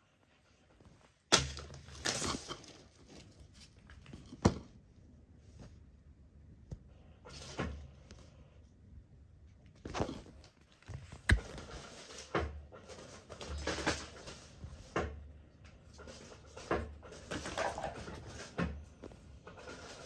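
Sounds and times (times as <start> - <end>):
clothing rustling: 0.0 - 4.4.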